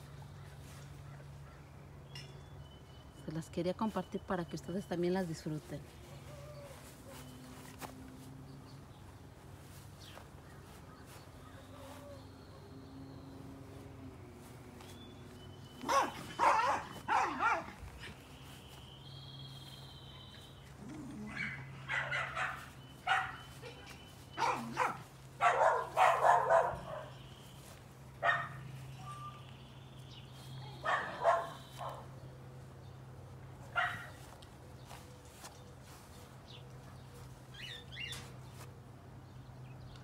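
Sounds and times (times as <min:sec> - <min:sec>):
dog barking: 0:15.8 - 0:17.8, 0:21.2 - 0:27.2, 0:28.2 - 0:28.6, 0:30.7 - 0:32.1, 0:33.7 - 0:34.2.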